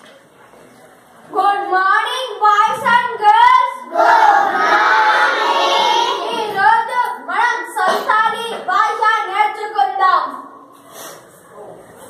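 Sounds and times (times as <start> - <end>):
children chanting in unison: 3.8 - 6.5
children calling out: 3.9 - 6.6.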